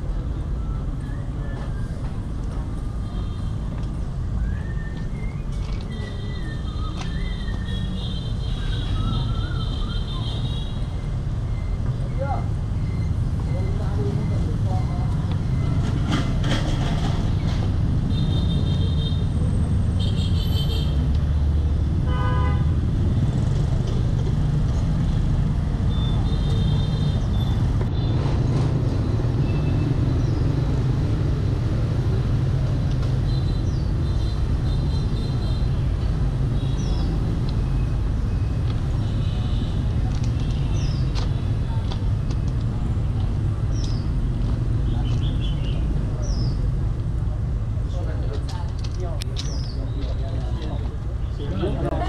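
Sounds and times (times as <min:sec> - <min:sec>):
city traffic rumble: 0:00.0 - 0:52.0
vehicle horns tooting: 0:22.0 - 0:22.7.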